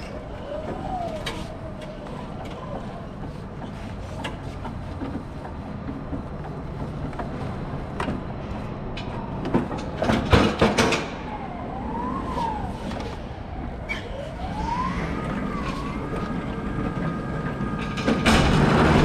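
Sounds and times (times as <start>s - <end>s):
pallet jack motor hum: 12.8s - 19.0s.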